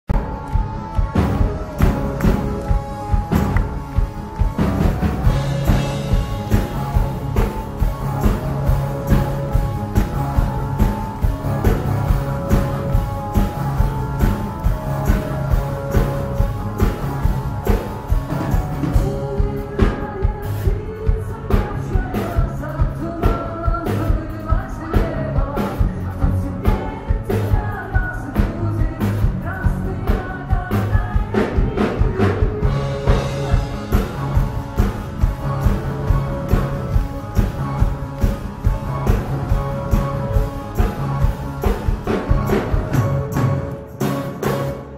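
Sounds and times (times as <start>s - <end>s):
drumbeat: 0.0s - 20.4s, 31.2s - 44.9s
rock band playing live: 0.0s - 44.9s
person singing: 0.1s - 44.2s.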